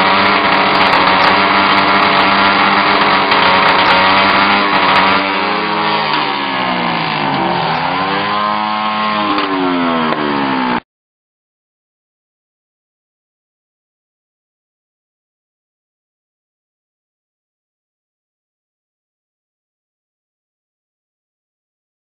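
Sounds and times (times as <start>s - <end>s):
motorcycle engine revving: 0.0s - 10.8s.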